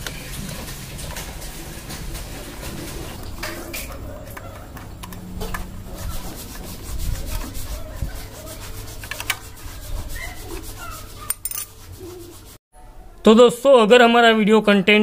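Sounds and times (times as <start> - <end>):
screwdriver scraping metal: 8.5 - 11.9.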